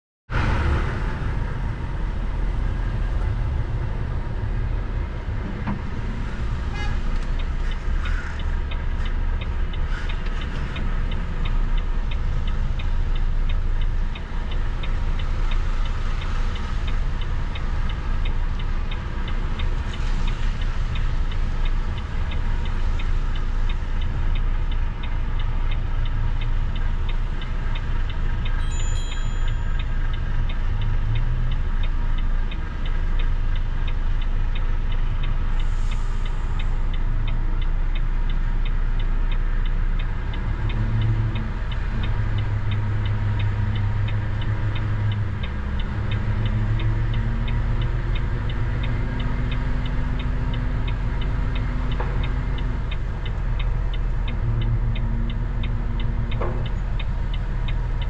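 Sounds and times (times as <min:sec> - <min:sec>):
vehicle engine and road rumble: 0:00.3 - 0:58.0
short high beep: 0:28.6 - 0:29.8.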